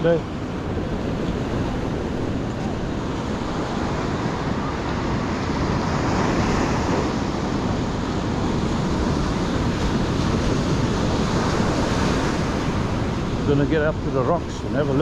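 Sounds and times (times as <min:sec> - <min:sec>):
ocean surf breaking: 0:00.0 - 0:15.0
wind rumbling on microphone: 0:00.0 - 0:15.0.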